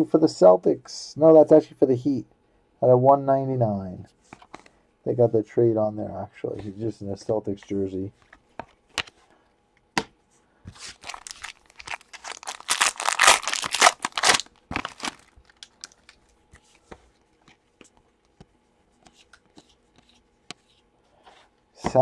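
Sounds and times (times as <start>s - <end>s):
foil wrapper tearing and crinkling: 10.8s - 16.2s.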